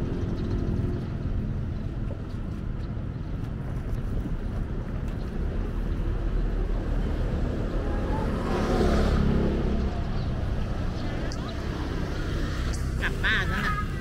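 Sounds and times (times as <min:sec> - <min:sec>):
street traffic rumble: 0:00.0 - 0:14.0
vehicle passing: 0:04.4 - 0:14.0.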